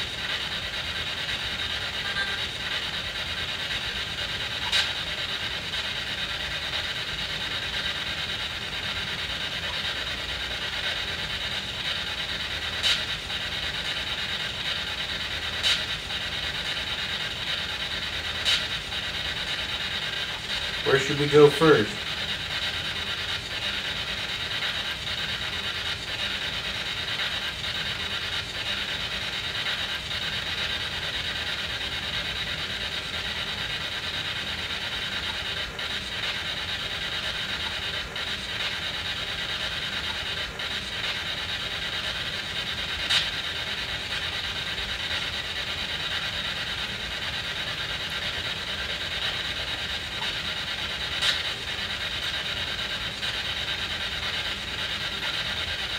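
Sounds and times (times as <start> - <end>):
radio static hissing: 0.0 - 7.2, 9.2 - 33.9
voice fragment in static: 1.8 - 2.7, 20.7 - 22.1
sharp click: 51.2 - 51.5.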